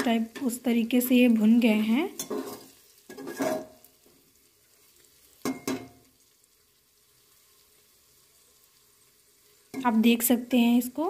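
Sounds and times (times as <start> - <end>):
onions sizzling: 0.0 - 11.0
metal spatula scraping pot: 2.0 - 3.8
metal clanking on pot: 2.2 - 3.8, 5.4 - 6.0.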